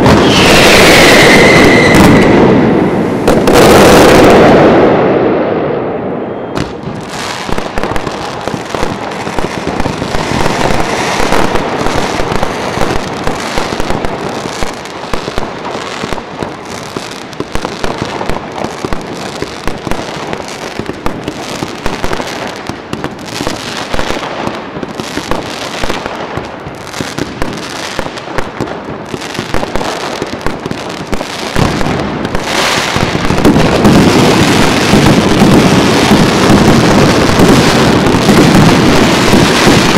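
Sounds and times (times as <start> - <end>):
fireworks bangs and crackles: 0.0 - 39.9.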